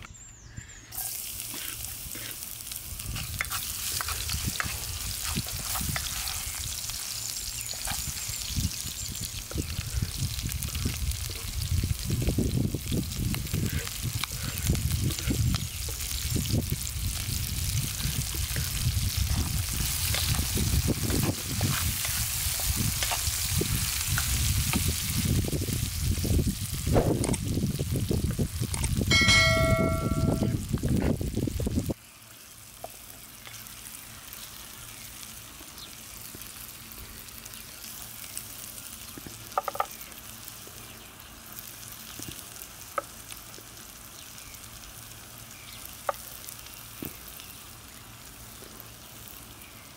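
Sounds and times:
faint crackles: 0.8 - 49.9
food sizzling in hot oil: 0.9 - 49.9
bell-like chime: 29.1 - 30.6.

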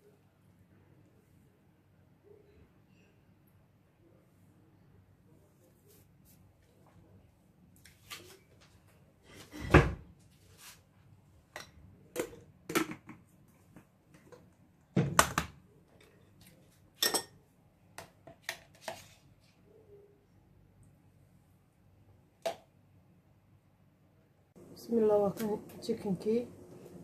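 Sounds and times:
kitchen objects knocking and clattering: 11.5 - 16.2.

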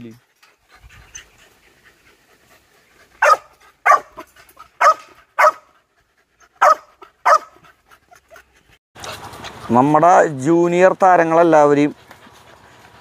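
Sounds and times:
puppy barking: 3.2 - 5.7, 6.6 - 7.6.

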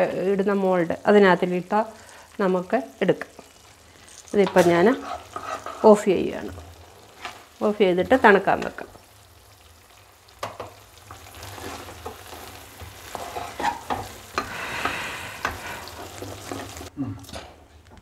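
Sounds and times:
light sizzle: 0.0 - 18.0
spatula scraping a pan: 4.1 - 6.1, 10.4 - 16.9.

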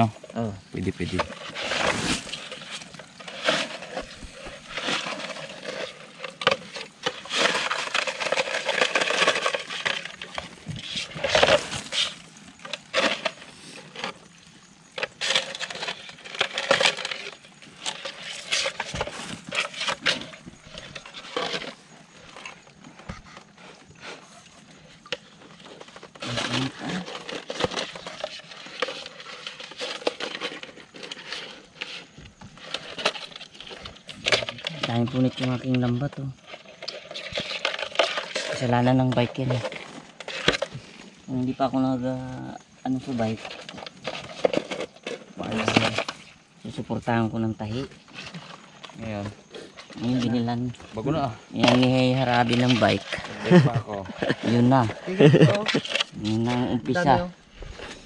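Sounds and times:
plastic sack and net rustling: 0.8 - 22.9.

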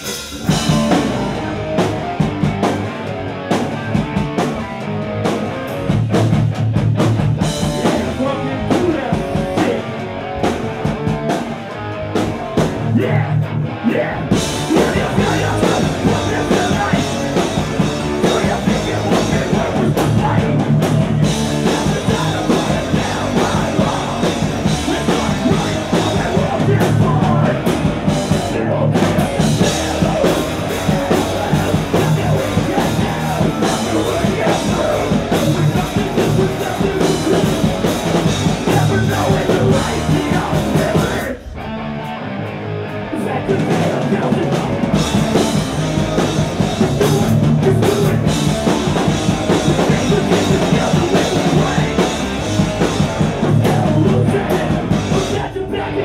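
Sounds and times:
pounding drum kit and cymbals: 0.0 - 42.2, 43.2 - 56.0
distorted electric guitar: 0.0 - 56.0
person singing into microphone: 12.8 - 41.5, 53.4 - 56.0.

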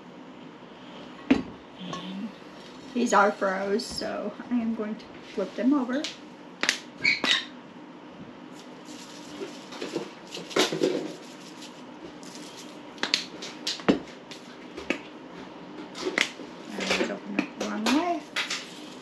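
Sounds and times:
shaker bottles shaking: 8.5 - 13.3.

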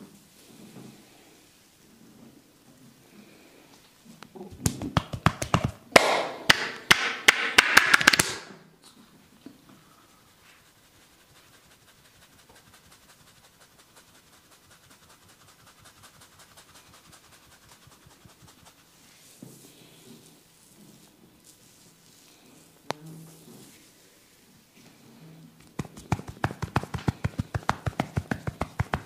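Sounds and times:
fingers rubbing hair: 4.5 - 5.8, 10.3 - 19.4, 25.6 - 29.0
hair cracking snaps and slaps: 4.6 - 8.5.

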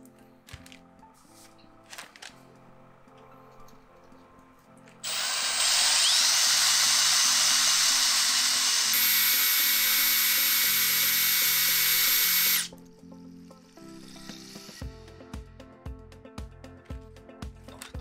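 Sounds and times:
drill grinding with high whine: 5.0 - 12.7.

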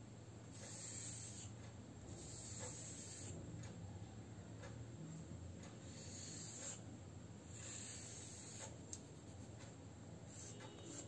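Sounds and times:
chalk scraping on cement floor: 0.6 - 1.5, 2.2 - 3.4, 5.9 - 6.8, 7.6 - 9.6, 10.3 - 11.0.

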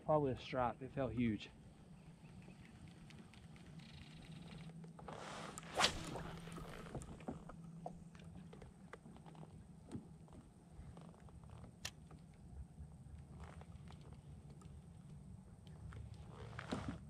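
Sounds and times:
faint low hum: 0.0 - 17.0
fishing rod and reel clicks: 2.4 - 7.2.

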